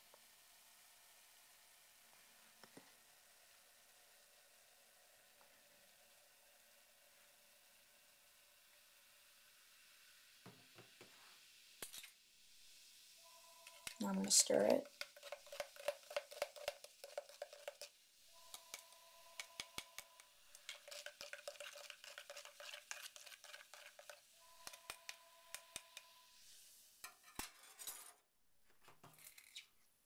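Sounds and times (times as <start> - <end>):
spoon stirring in plastic cup: 13.6 - 26.1.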